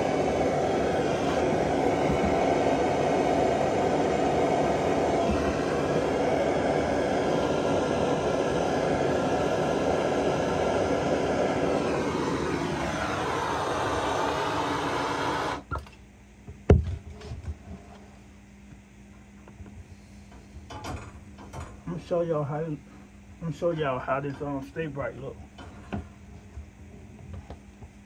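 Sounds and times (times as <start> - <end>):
gas torch flame hissing: 0.0 - 15.6.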